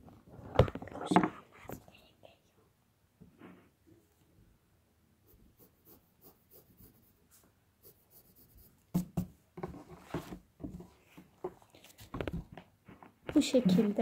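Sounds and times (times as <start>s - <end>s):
pencil scratching on paper: 5.2s - 9.3s.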